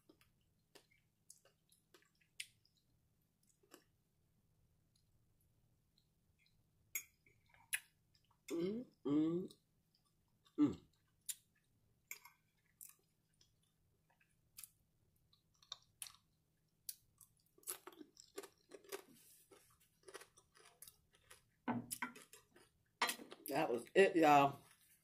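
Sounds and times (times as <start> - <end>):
chewing crispy bacon crunches: 16.9 - 22.8.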